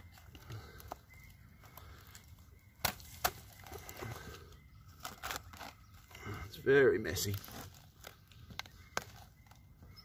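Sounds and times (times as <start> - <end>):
knife crunching bee comb: 0.1 - 6.4.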